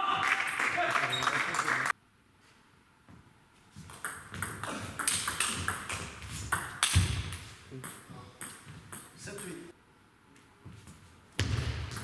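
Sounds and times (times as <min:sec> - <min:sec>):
table tennis ball hits: 0:03.9 - 0:09.6.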